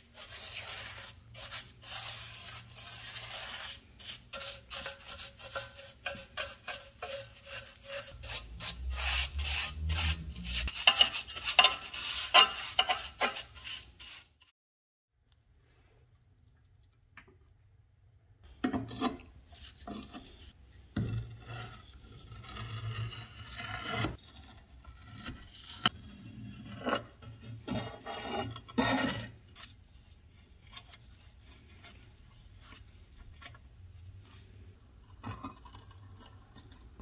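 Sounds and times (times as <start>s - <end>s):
metal scraping and rubbing: 0.0s - 14.5s.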